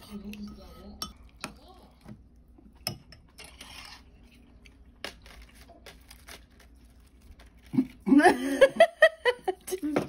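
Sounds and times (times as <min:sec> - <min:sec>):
spoon scraping ceramic bowl: 0:02.8 - 0:04.4.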